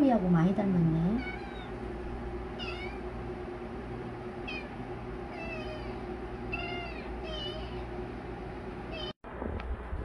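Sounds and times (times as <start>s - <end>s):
steady low hum: 0.0s - 10.0s
kitten mewing: 1.1s - 1.8s, 2.6s - 3.0s, 4.4s - 7.9s.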